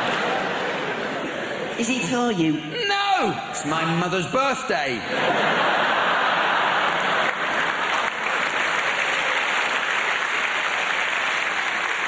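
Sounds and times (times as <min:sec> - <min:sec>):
audience laughing: 0:00.0 - 0:01.8, 0:04.9 - 0:08.3
audience clapping: 0:06.4 - 0:12.0.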